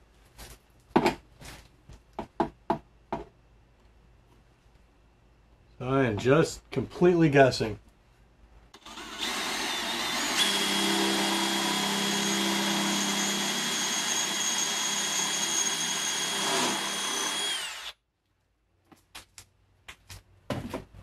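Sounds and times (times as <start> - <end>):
cordless drill drilling metal: 8.8 - 18.0.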